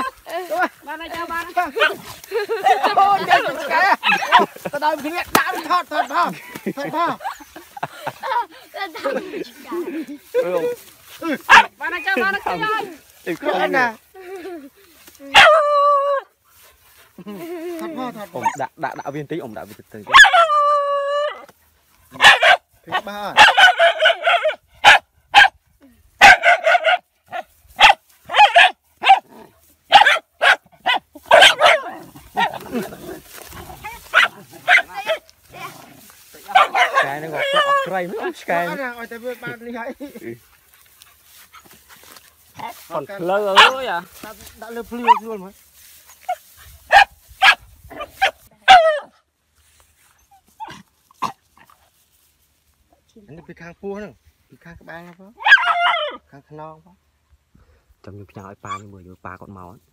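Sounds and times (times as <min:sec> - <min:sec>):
dog barking: 0:01.8 - 0:02.1, 0:03.2 - 0:04.6, 0:11.5 - 0:11.8, 0:15.3 - 0:16.0, 0:20.1 - 0:21.4, 0:22.2 - 0:25.6, 0:26.2 - 0:32.7, 0:33.8 - 0:35.7, 0:36.5 - 0:38.1, 0:43.5 - 0:44.0, 0:45.0 - 0:45.2, 0:46.9 - 0:49.2, 0:55.4 - 0:56.2.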